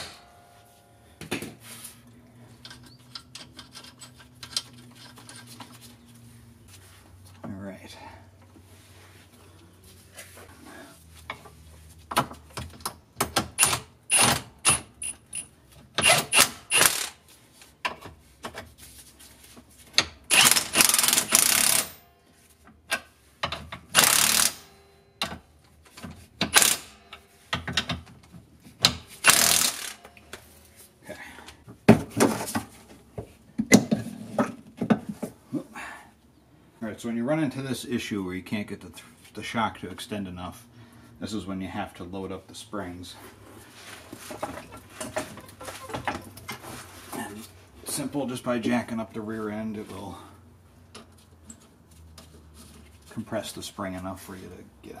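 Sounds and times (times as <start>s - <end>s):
metal clinks and rattles of tools: 2.6s - 5.8s
loud mechanical bursts: 16.0s - 17.2s, 20.3s - 21.9s, 24.0s - 24.7s, 26.5s - 26.9s, 29.2s - 30.0s.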